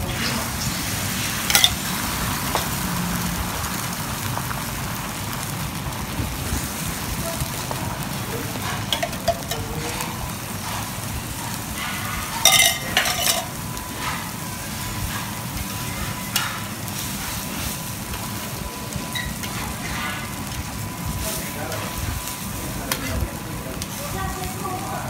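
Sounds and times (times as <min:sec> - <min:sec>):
egg sizzling on a griddle: 0:00.0 - 0:25.0
metal clatter: 0:01.5 - 0:01.8, 0:12.4 - 0:13.5
metal spatula scraping griddle: 0:08.5 - 0:11.0, 0:11.7 - 0:18.5, 0:19.1 - 0:20.5.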